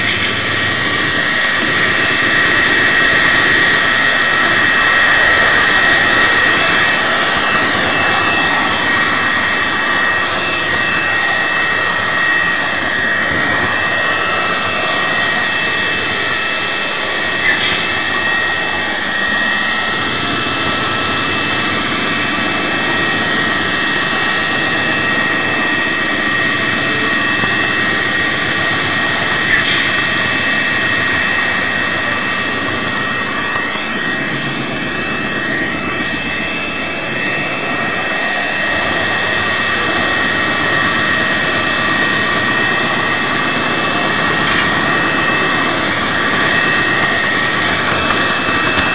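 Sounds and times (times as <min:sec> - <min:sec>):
diesel engine sound: 0:00.0 - 0:48.9.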